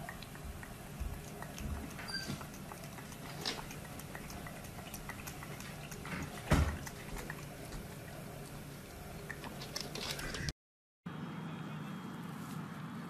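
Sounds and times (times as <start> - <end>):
piglet hooves clicking on floor: 0.0 - 8.0
piglet mouth smacking: 0.0 - 10.4.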